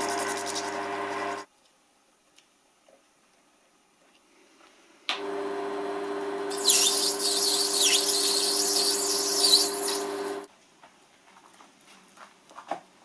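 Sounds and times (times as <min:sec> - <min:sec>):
lathe motor humming: 0:05.2 - 0:10.5
harsh high-pitched metal cutting: 0:06.5 - 0:10.5.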